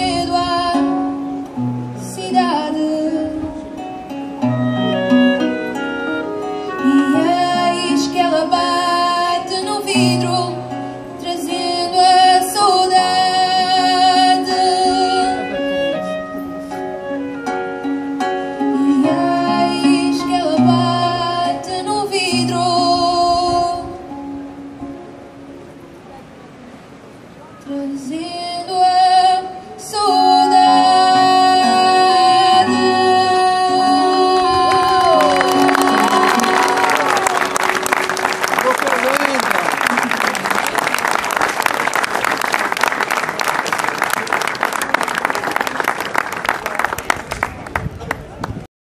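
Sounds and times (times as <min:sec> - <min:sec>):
woman singing: 0:00.0 - 0:01.4, 0:02.0 - 0:03.9, 0:06.6 - 0:16.1, 0:18.6 - 0:24.2, 0:27.6 - 0:37.2
classical guitar: 0:00.0 - 0:38.7
clarinet: 0:03.8 - 0:11.0, 0:13.1 - 0:25.1, 0:30.0 - 0:39.2
audience applause: 0:34.7 - 0:48.6.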